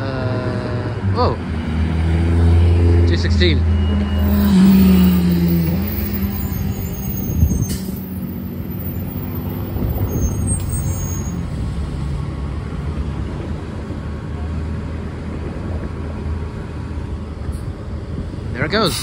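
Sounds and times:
bus engine running: 0:00.0 - 0:19.0.

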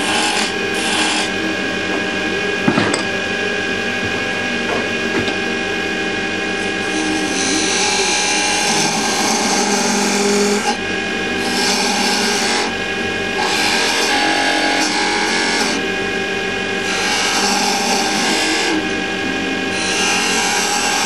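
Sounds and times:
turning tool shaving wood: 0:00.0 - 0:01.4, 0:06.6 - 0:15.9, 0:16.8 - 0:19.0, 0:19.6 - 0:21.0
wood lathe motor humming: 0:00.0 - 0:21.0.

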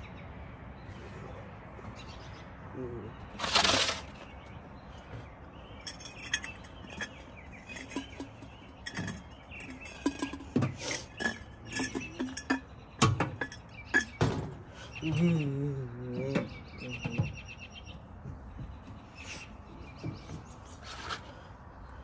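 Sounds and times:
light clicks and clinks: 0:05.7 - 0:14.2.

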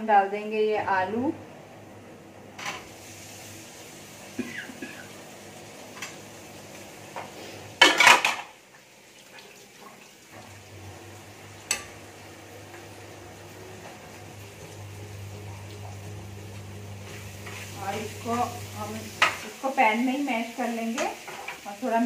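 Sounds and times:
pots and pans clattering: 0:07.1 - 0:08.6.

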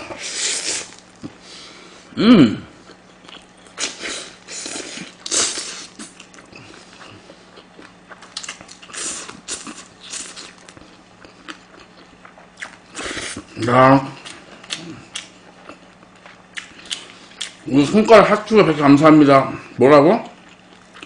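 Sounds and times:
chewing and slurping food: 0:02.8 - 0:13.6.

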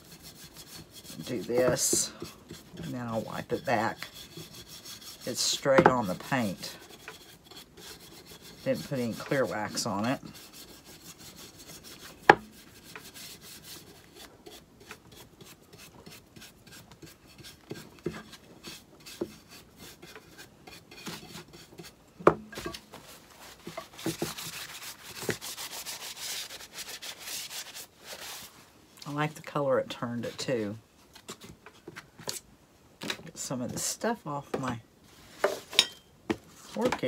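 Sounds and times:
brush scrubbing wood: 0:00.0 - 0:22.0, 0:22.6 - 0:29.3.

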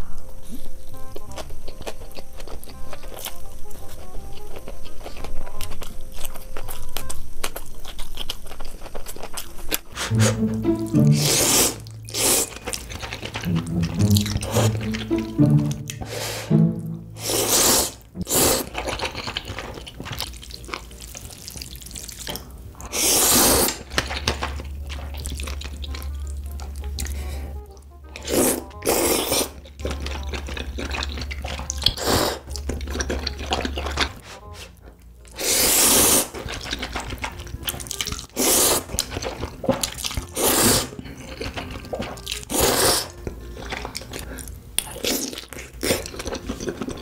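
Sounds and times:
wet chewing and smacking: 0:00.2 - 0:10.1, 0:11.8 - 0:15.4, 0:18.0 - 0:47.0
loud slurping of noodles: 0:11.1 - 0:12.8, 0:17.2 - 0:18.7, 0:22.9 - 0:23.8, 0:35.4 - 0:36.4, 0:38.4 - 0:38.9, 0:40.4 - 0:40.9, 0:42.5 - 0:43.1.

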